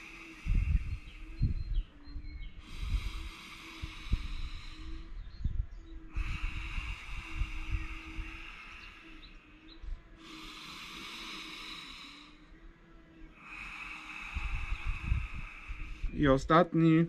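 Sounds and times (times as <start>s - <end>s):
man breathing deeply: 0.0s - 16.4s.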